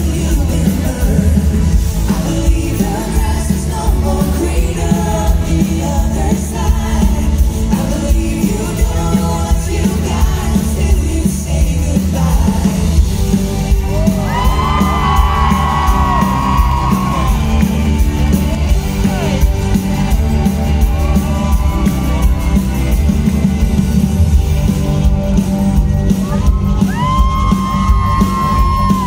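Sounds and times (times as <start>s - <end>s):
person singing: 0.0s - 17.6s
heavy bass beat: 0.0s - 29.0s
live pop song over pa: 0.0s - 29.0s
crowd yelling and whooping: 13.5s - 29.0s.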